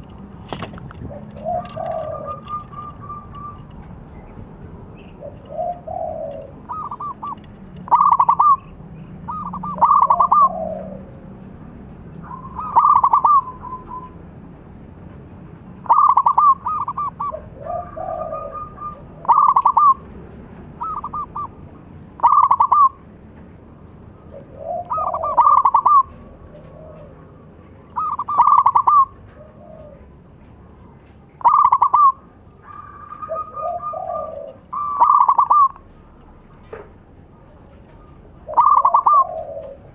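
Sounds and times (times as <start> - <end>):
dove cooing: 1.0 - 3.7, 5.1 - 8.7, 9.3 - 11.2, 12.2 - 14.2, 15.9 - 20.0, 22.2 - 22.9, 24.3 - 27.3, 28.0 - 30.1, 31.4 - 39.9.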